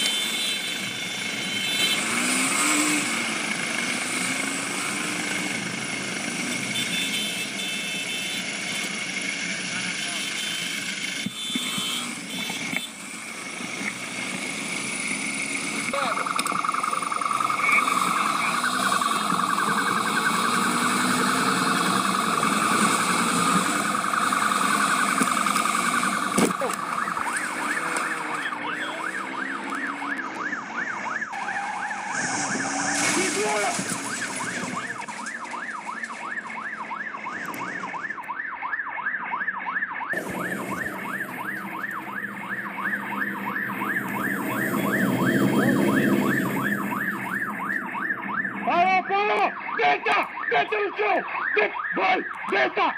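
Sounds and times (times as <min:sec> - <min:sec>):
police siren yelping: 0:14.8 - 0:52.9.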